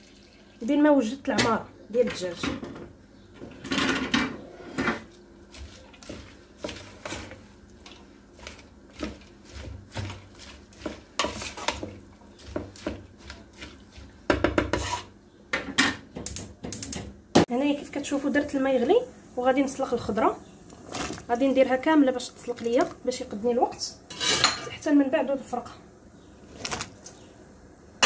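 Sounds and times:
spoon scraping metal pot: 8.4s - 13.8s, 14.6s - 15.1s, 24.1s - 24.7s.

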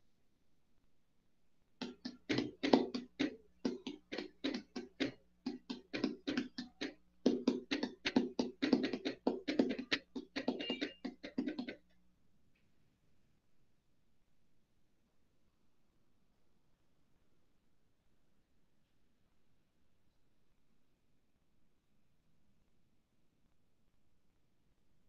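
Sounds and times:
quick taps or knocks: 1.8s - 11.8s.

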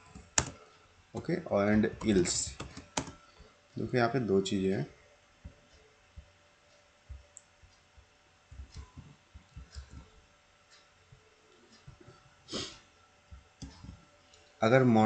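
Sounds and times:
keyboard and mouse clicks: 0.1s - 0.6s, 1.2s - 3.2s.

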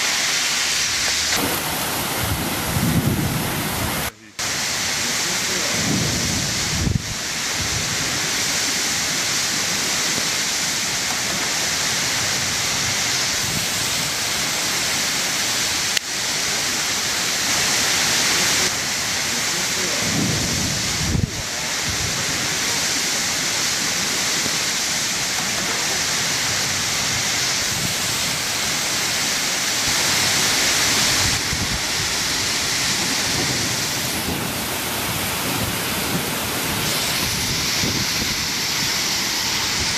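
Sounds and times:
heavy rain roaring: 0.0s - 39.9s
wind buffeting microphone: 1.3s - 4.1s, 5.5s - 8.4s, 20.0s - 22.5s, 29.8s - 39.9s.

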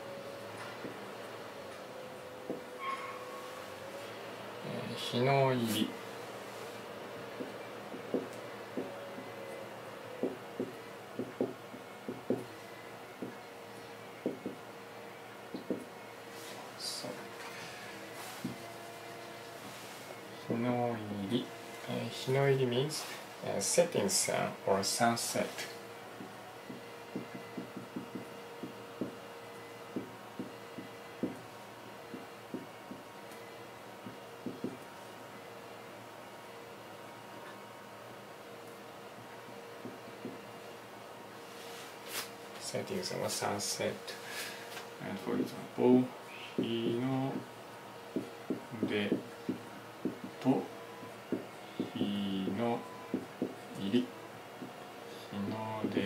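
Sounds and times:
faint steady hum: 0.0s - 56.0s
marker writing on whiteboard: 7.4s - 8.9s, 14.2s - 14.6s, 26.7s - 29.2s, 48.1s - 50.4s.

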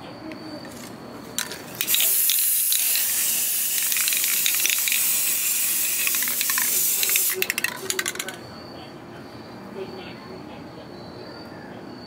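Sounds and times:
spray-paint can hissing: 1.4s - 8.4s.

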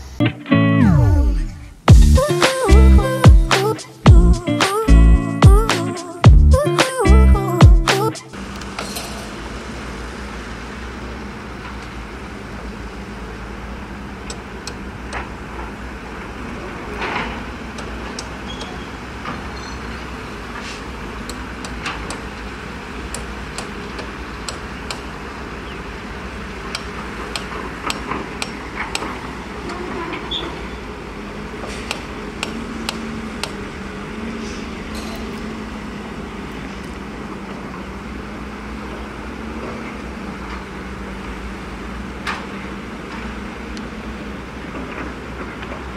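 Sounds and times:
diesel engines droning: 8.2s - 45.9s
sharp clicks and knocks: 23.1s - 25.1s, 26.7s - 29.8s.

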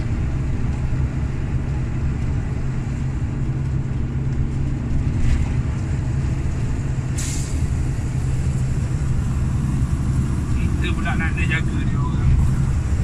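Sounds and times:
road noise: 0.0s - 13.0s
truck diesel engine drone: 0.0s - 13.0s
short hiss: 7.2s - 7.6s.

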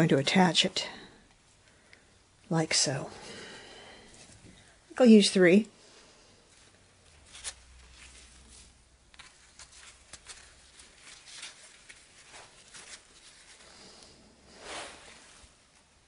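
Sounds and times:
rustling of sprigs: 6.5s - 15.9s.

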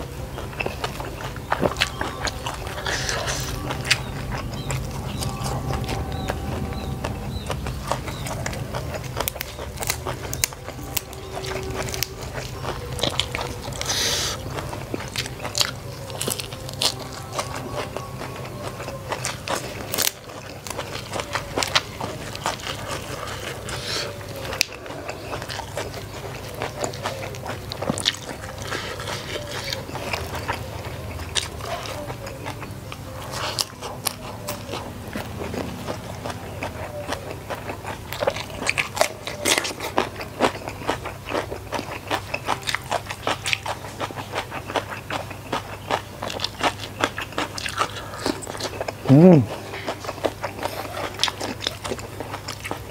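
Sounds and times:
crunchy chewing: 0.0s - 52.9s.

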